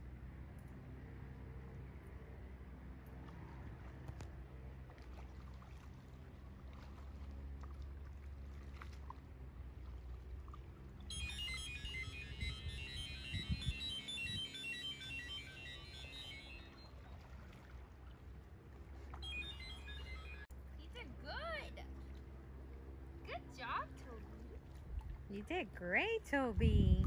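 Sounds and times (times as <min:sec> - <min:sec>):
kayak paddling on water: 0:00.0 - 0:27.0
wind on microphone: 0:11.1 - 0:15.5, 0:26.4 - 0:27.0
high-pitched plinking melody: 0:11.1 - 0:16.8, 0:19.2 - 0:20.5.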